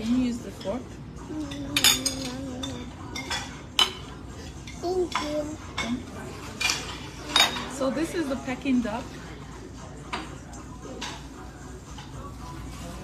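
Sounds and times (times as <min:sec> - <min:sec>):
cutlery clinking against plates: 0:01.4 - 0:08.0, 0:10.0 - 0:12.3.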